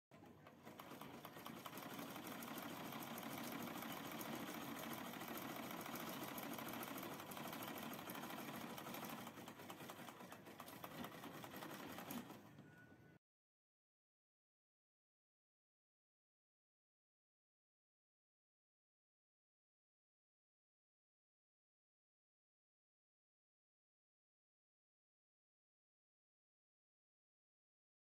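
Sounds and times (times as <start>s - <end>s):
sewing machine clattering: 0.1s - 12.5s.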